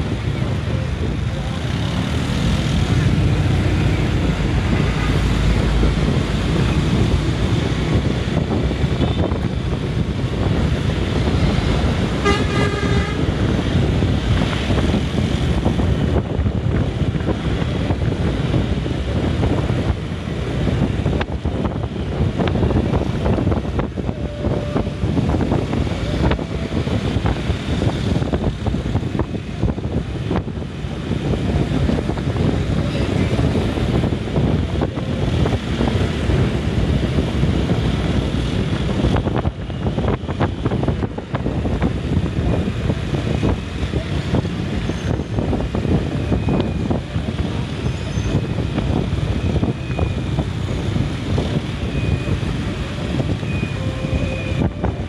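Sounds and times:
motorbike road and traffic noise: 0.0 - 55.0
wind buffeting microphone: 0.0 - 55.0
vehicle horn: 12.1 - 13.5.

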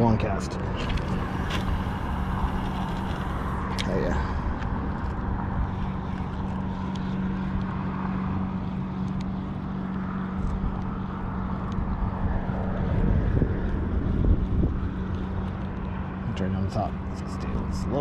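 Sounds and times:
engine hum: 0.0 - 18.0
low rumbling wind: 0.0 - 18.0.

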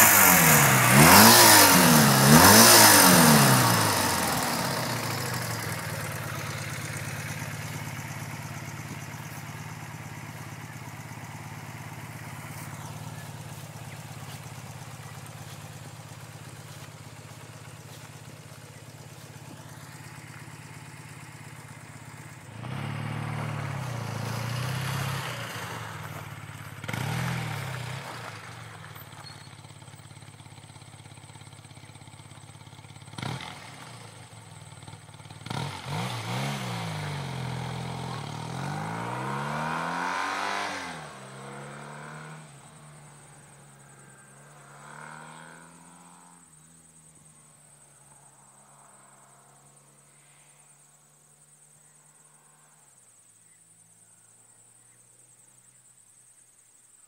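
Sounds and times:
motorcycle engine accelerating: 0.0 - 50.2.

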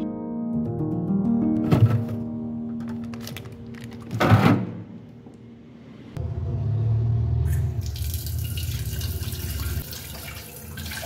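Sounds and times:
tap water running into saucepan: 7.8 - 11.0.

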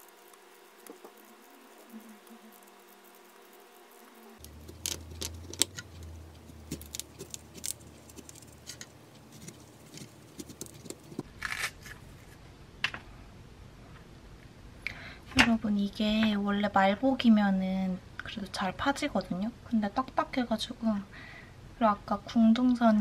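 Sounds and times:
knife clicking and scraping fruit: 0.0 - 11.7.

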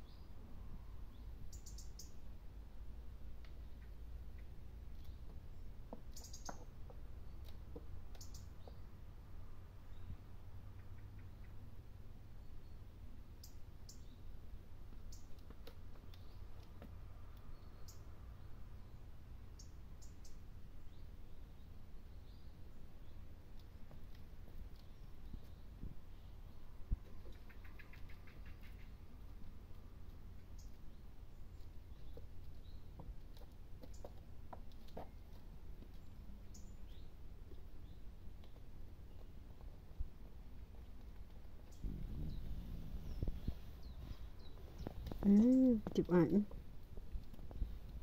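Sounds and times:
faint bird chirps: 0.0 - 2.2, 3.5 - 7.5, 8.1 - 8.9, 9.9 - 14.3, 17.4 - 23.3, 24.8 - 29.0, 41.6 - 46.5
hooves on wooden walkway: 31.4 - 48.0
steady low rumble: 39.2 - 48.0.

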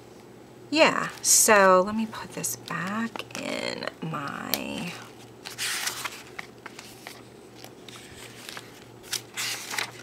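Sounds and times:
paper pages rustling: 2.6 - 3.6, 4.2 - 10.0.

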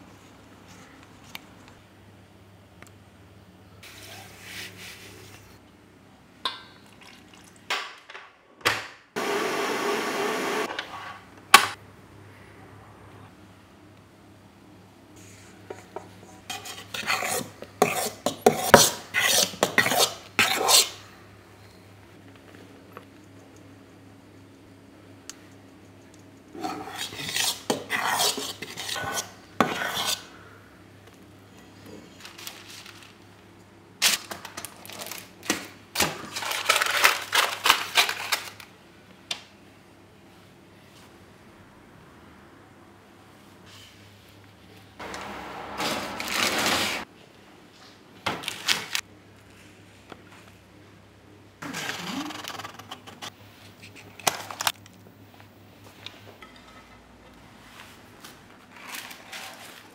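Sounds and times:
utensil scraping a bowl: 15.8 - 21.0, 26.6 - 30.3.

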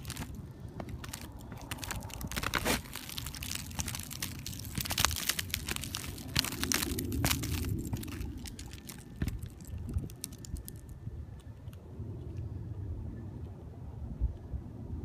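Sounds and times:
footsteps crunching on icy snow: 0.0 - 10.8
low rumble: 0.0 - 15.0.

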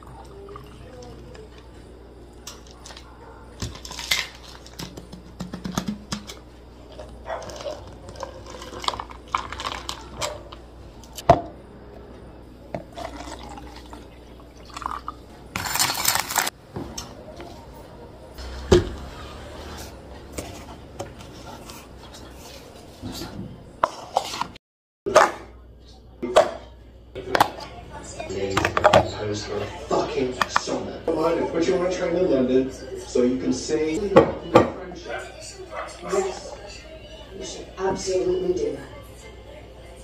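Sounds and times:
cups knocked on wooden counter: 4.9 - 6.3
liquid pouring into plastic cups: 12.8 - 16.5.

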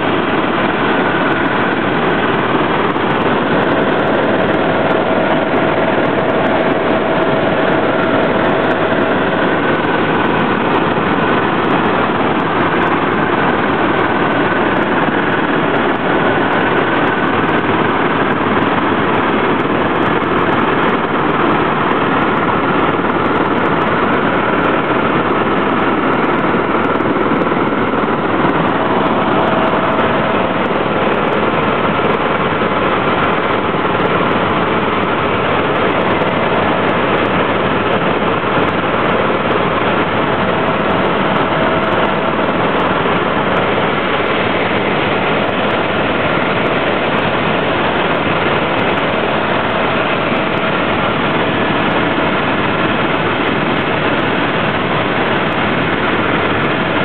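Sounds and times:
helicopter rotor and engine drone: 0.0 - 57.0.

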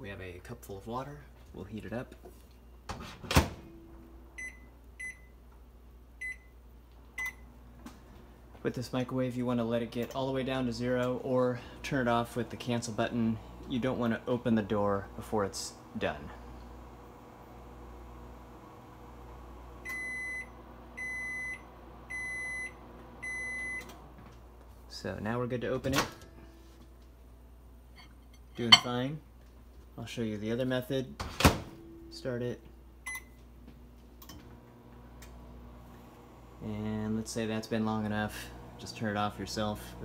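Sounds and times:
microwave oven humming: 2.6 - 28.7, 31.2 - 40.0
high microwave beeps: 3.7 - 5.4, 6.2 - 6.6, 7.2 - 7.5, 19.8 - 23.9, 33.0 - 33.4.

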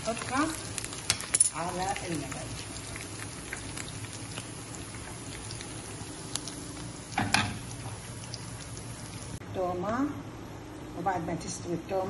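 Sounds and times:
garlic sizzling in hot oil: 0.0 - 9.4.

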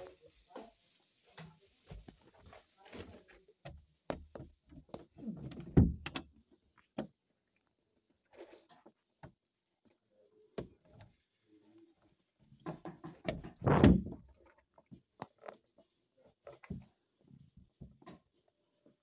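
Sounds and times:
door thump: 13.6 - 14.2.

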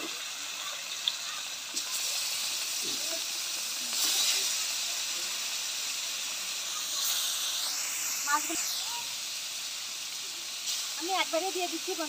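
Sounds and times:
fish frying in hot oil: 0.0 - 12.0.

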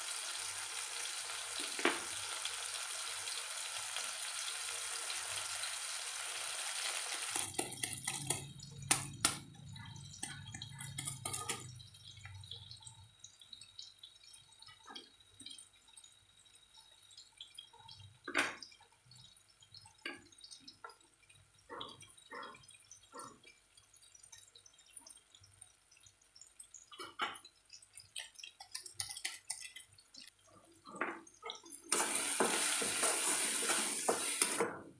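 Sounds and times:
onion and tomato sizzling: 0.0 - 12.4, 31.8 - 34.9.

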